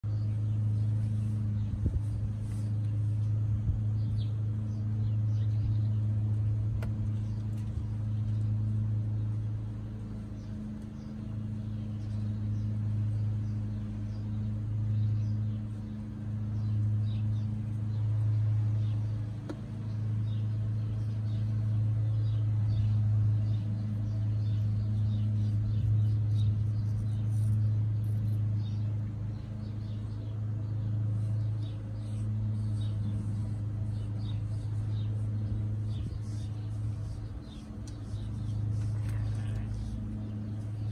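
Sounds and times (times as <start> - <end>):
low mechanical hum: 0.0 - 40.9.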